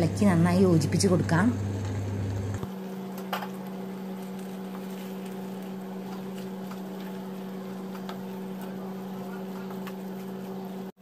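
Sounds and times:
steady low hum: 0.0s - 11.0s
spatula stirring sausage in a pan: 4.1s - 10.8s.

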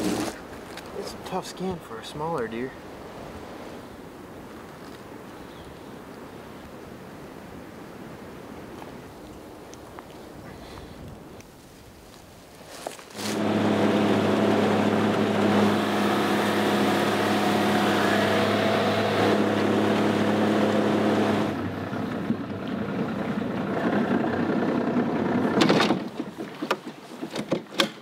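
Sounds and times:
outboard motor running: 13.2s - 26.1s.

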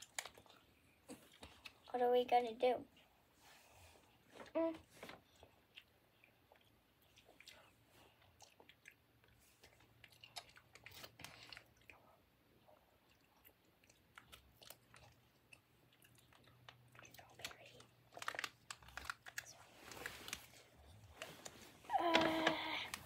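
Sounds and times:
snack wrapper crackling: 0.0s - 1.9s, 9.6s - 12.0s, 13.4s - 23.0s
faint chewing: 0.0s - 23.0s.

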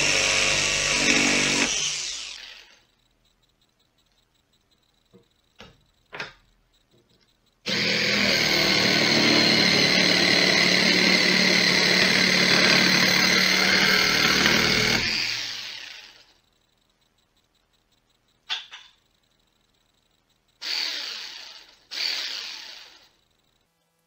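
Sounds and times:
jigsaw sawing wood: 0.0s - 2.7s, 7.7s - 16.2s.

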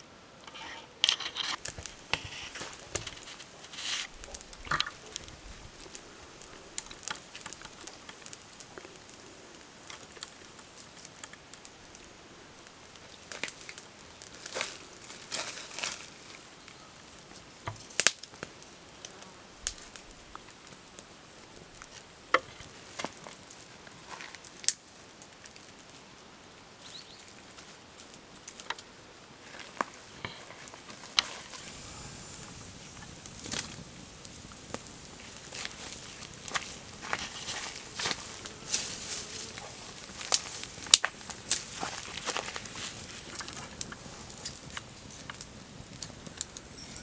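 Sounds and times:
sharp cracks: 0.5s - 12.1s, 30.2s - 46.7s.

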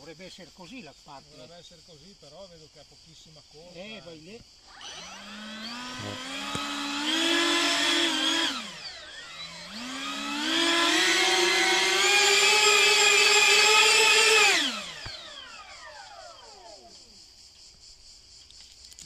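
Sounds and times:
ducted fans whining: 4.7s - 16.9s.

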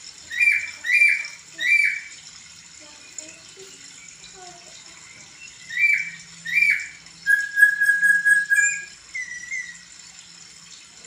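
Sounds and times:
bird singing clear whistles: 5.4s - 9.9s.

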